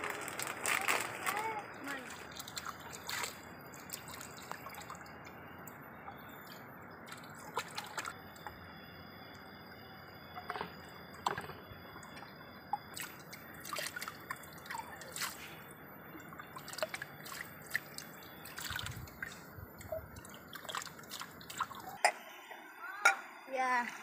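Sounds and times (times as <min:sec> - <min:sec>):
water dripping and splashing: 0:00.4 - 0:05.8, 0:06.4 - 0:08.5, 0:12.0 - 0:22.0.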